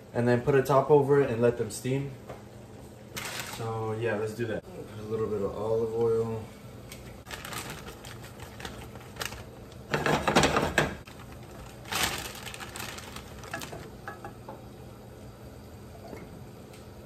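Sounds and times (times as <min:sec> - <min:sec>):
green beans clattering into pan: 0:07.3 - 0:14.3.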